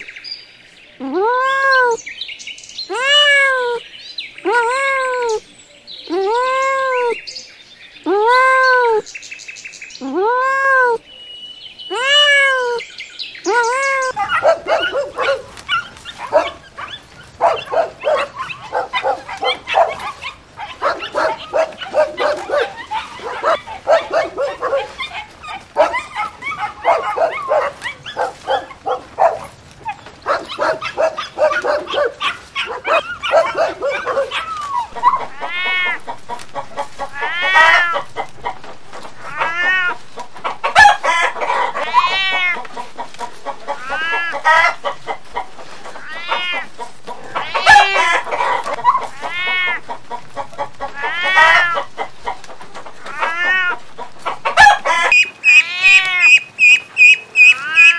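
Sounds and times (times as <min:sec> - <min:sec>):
chicken clucking: 0:13.5 - 0:57.9
dogs barking and yipping: 0:13.5 - 0:57.9.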